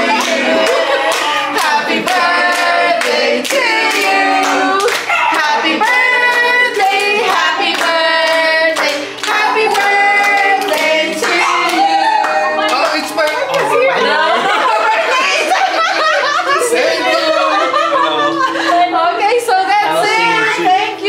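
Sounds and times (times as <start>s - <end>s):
people clapping: 0.0s - 16.6s
group singing: 0.0s - 21.0s.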